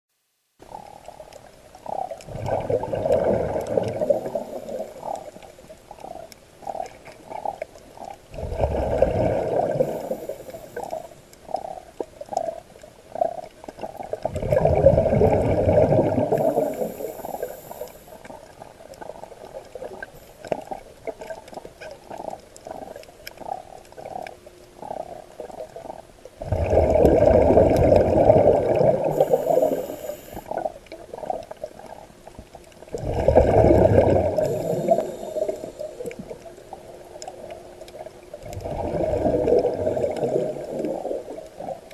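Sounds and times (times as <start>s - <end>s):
diver exhaling bubbles: 1.8s - 5.3s, 8.3s - 17.9s, 26.4s - 31.5s, 32.9s - 36.5s, 38.4s - 41.8s.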